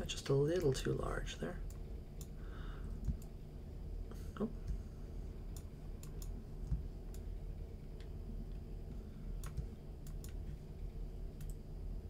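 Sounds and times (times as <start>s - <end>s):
low steady hum: 0.0s - 12.0s
computer mouse clicking: 1.6s - 3.4s, 5.5s - 7.3s, 9.4s - 10.6s, 11.4s - 11.6s.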